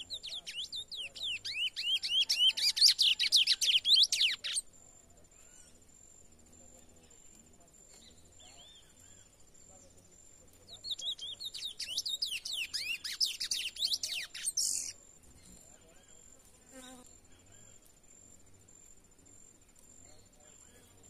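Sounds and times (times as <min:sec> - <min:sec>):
finch singing whistled notes: 0:00.0 - 0:04.6, 0:10.7 - 0:15.0.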